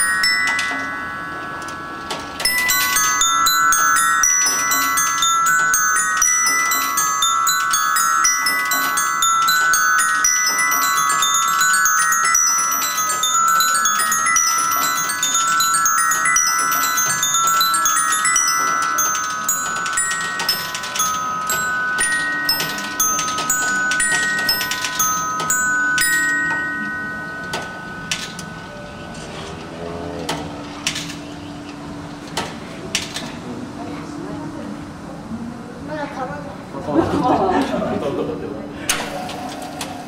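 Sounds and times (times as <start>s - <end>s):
ball bearings striking metal bars: 0.0s - 29.4s.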